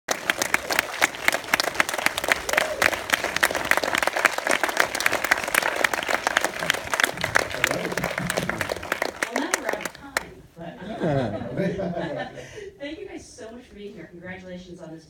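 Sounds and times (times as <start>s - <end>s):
hands clapping close by: 0.1s - 10.3s
audience applauding: 0.1s - 10.4s.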